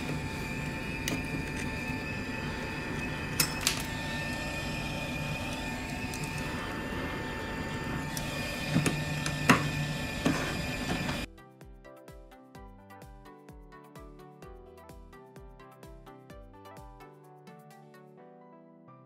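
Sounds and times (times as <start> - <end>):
hot air station fan whine: 0.0 - 11.3.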